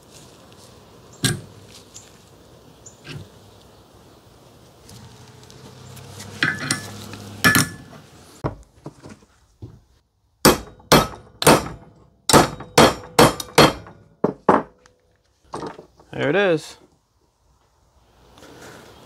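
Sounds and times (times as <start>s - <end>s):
hammer striking metal: 6.4s - 7.9s, 10.4s - 14.7s.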